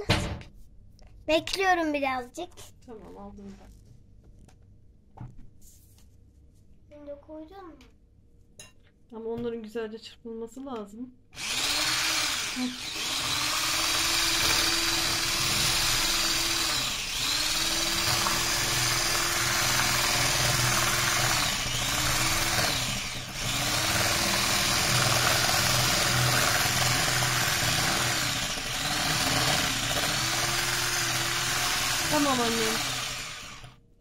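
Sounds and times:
stick blender motor humming: 11.4 - 33.8.

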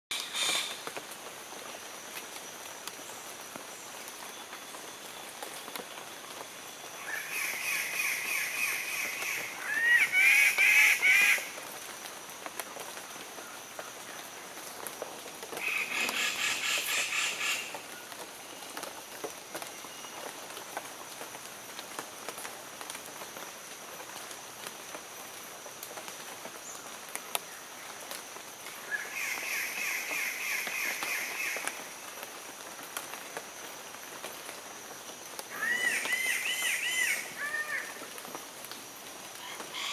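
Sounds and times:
birds screeching loudly: 0.1 - 0.8, 35.6 - 37.9.

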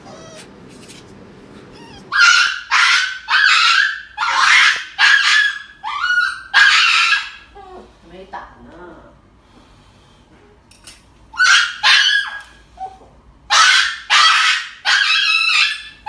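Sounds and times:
dog yelping: 0.0 - 0.6, 1.7 - 7.6, 11.3 - 16.0.

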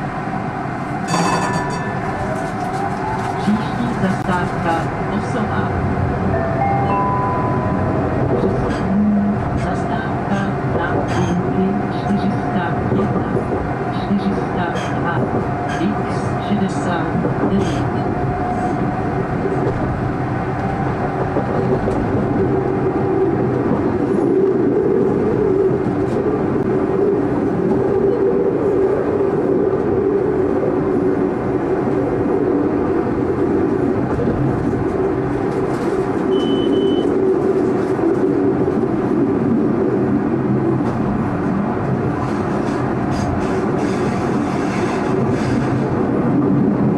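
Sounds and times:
tram wheels rumbling on rails: 0.0 - 46.9
brief high tone: 1.1 - 2.1, 6.4 - 8.0.

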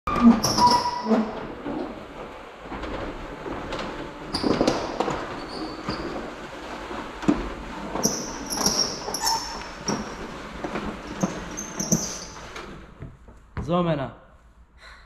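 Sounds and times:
high squeaks: 0.1 - 1.5, 8.0 - 10.4, 11.0 - 12.6
metal roller shutter rattling: 0.1 - 13.0.

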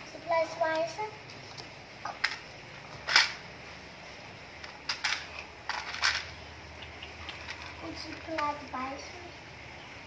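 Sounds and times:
plastic toys clattering: 2.1 - 3.5, 4.6 - 6.4, 7.3 - 8.7.

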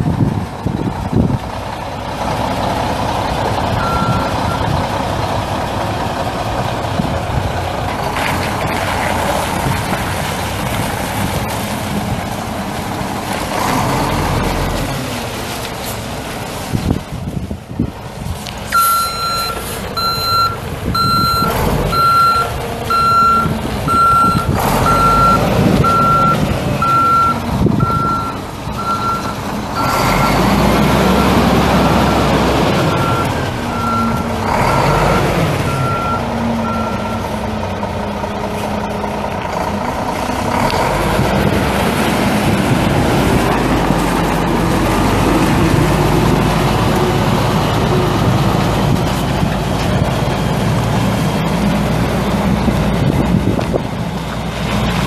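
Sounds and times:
diesel engine under load: 0.0 - 55.0
truck backup alarm beeping: 3.7 - 4.8, 18.7 - 37.6.

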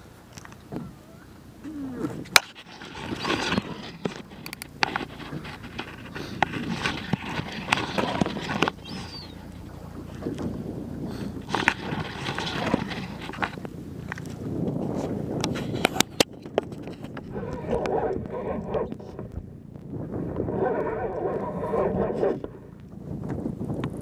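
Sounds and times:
wind: 0.0 - 24.0
fishing reel clicks and knocks: 4.3 - 5.2.

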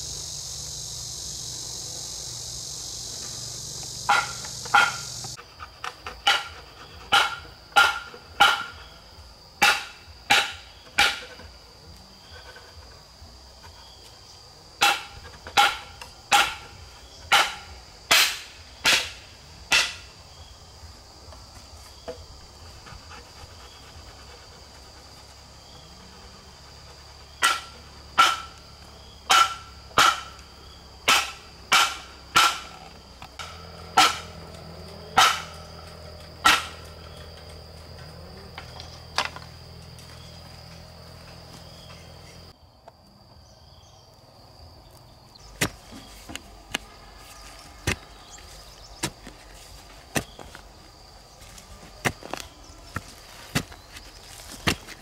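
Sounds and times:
hand tool striking wood: 4.0 - 6.5, 7.1 - 8.8, 9.6 - 11.4, 14.8 - 16.7, 17.3 - 20.1, 27.4 - 28.6, 29.3 - 30.4, 31.1 - 34.5, 35.2 - 35.7, 36.4 - 37.0, 45.6 - 50.7, 51.4 - 55.0.

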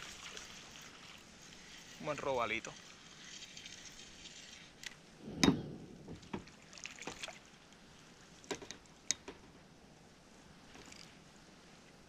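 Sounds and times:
knocks and clicks of fishing tackle: 8.5 - 9.6.

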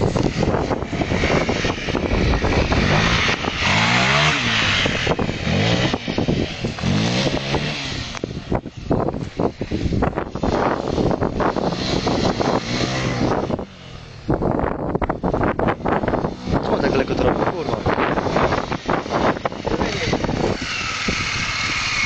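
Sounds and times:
motorcycle riding past: 0.0 - 14.7, 15.6 - 22.0
wind buffeting on microphone: 0.0 - 22.0.

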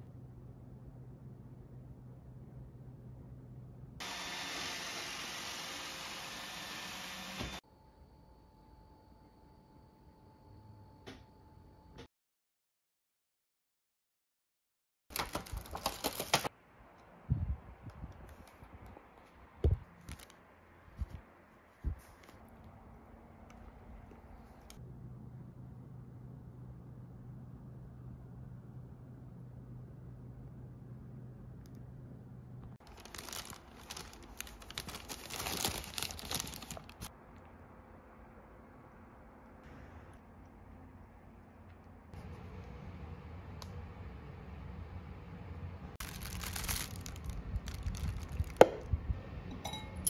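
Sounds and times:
plastic bag crinkling: 15.1 - 16.5, 32.8 - 37.1, 46.0 - 48.8.

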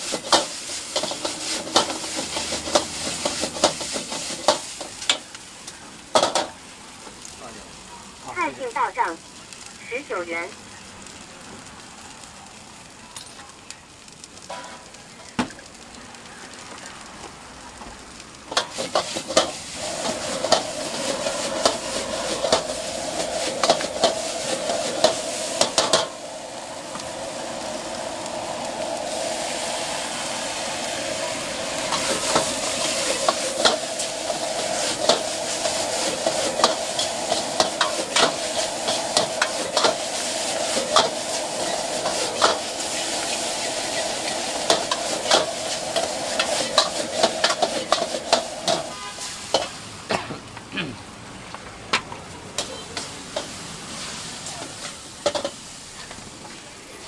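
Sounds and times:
noodles sizzling in a wok: 0.0 - 50.1, 51.3 - 57.0
metal ladle scraping a wok: 0.1 - 4.9.

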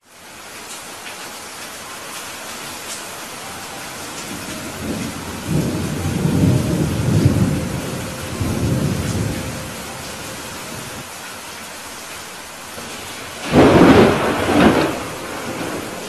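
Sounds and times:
steady rain: 0.0 - 16.0
thunder rumbling: 3.5 - 11.1, 12.8 - 16.0.

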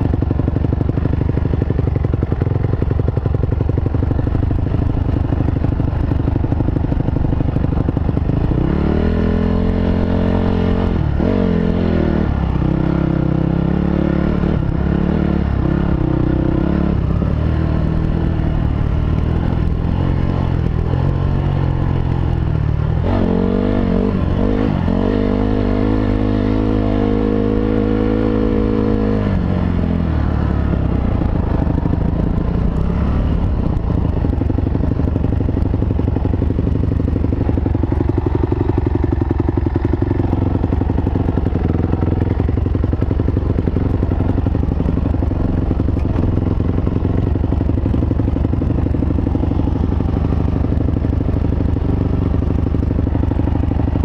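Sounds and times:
dirt bike engine running: 0.0 - 54.0.

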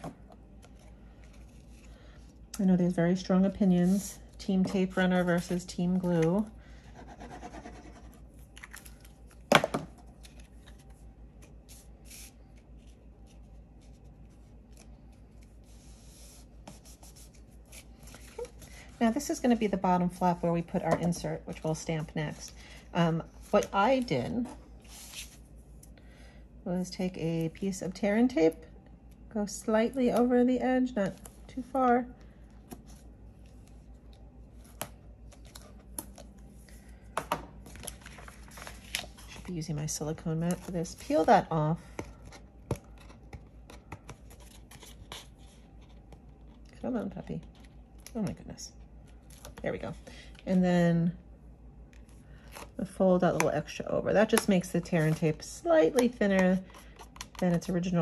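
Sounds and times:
paper handling: 0.5 - 2.3, 8.3 - 19.2, 37.6 - 46.7.

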